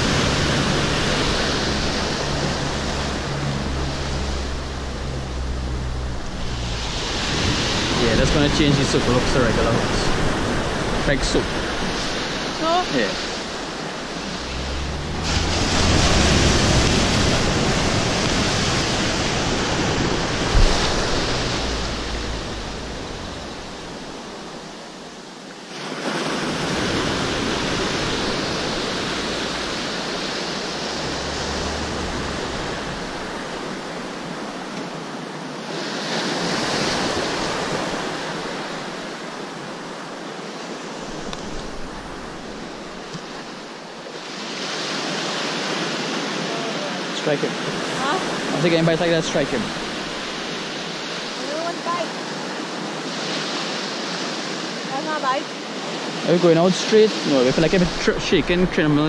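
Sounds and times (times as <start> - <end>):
wind buffeting microphone: 0.0 - 25.0
ocean surf breaking: 0.0 - 59.0.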